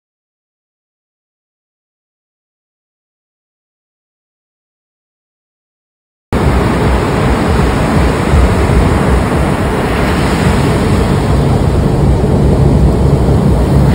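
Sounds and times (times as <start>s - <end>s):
ocean surf on beach: 6.4s - 13.9s
wind rumbling on microphone: 6.4s - 13.9s.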